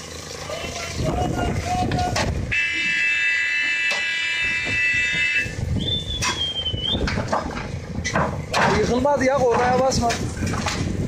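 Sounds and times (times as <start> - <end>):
diesel engine rumble: 0.0 - 11.0
machine horn buzzing: 2.5 - 5.6.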